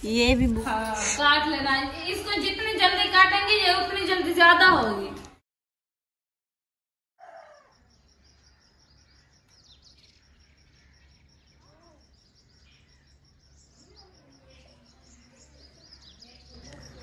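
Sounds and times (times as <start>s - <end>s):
insect trill: 7.2s - 17.0s
small birds chirping: 7.2s - 17.0s.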